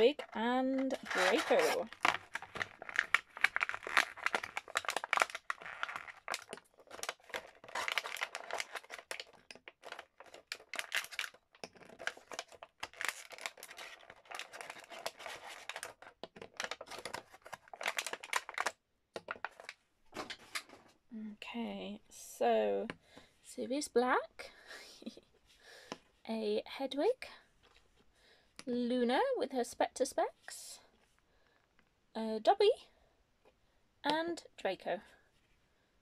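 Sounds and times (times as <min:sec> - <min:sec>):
plastic packaging crinkling: 0:00.0 - 0:20.7.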